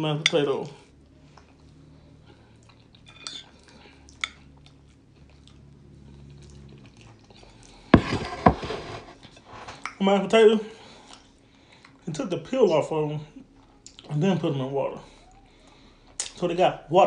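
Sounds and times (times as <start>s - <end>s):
faint low hum: 0.0s - 17.0s
loud knocks and rustling: 8.0s - 9.2s.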